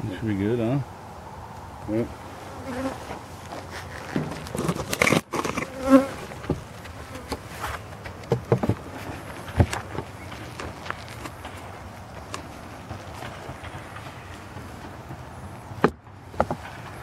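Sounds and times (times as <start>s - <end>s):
honeybees buzzing: 0.3s - 17.0s
knocks and scrapes of wooden box: 3.1s - 11.5s.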